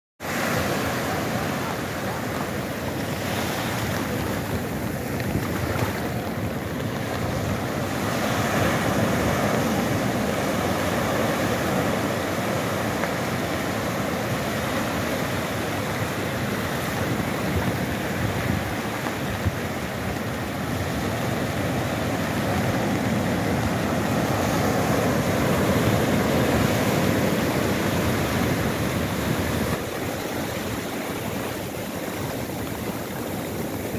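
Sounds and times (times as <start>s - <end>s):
surf washing up a shore: 0.2s - 33.9s.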